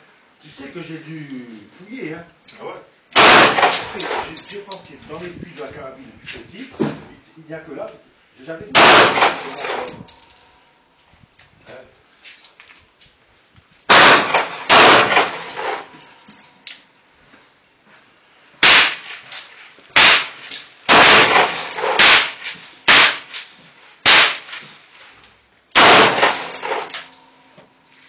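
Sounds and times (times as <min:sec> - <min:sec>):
pistol shots with echo: 0:03.1 - 0:04.4, 0:08.8 - 0:10.0, 0:13.9 - 0:15.9, 0:20.9 - 0:23.2, 0:25.8 - 0:27.1.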